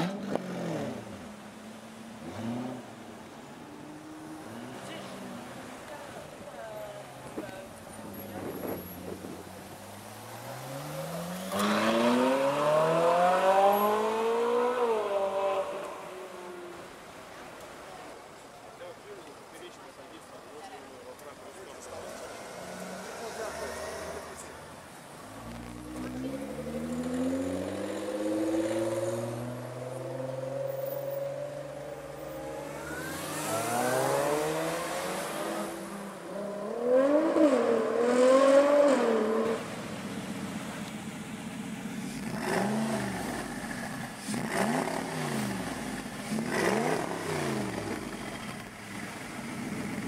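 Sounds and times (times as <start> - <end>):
car engine revving: 8.1 - 15.8, 25.2 - 50.0.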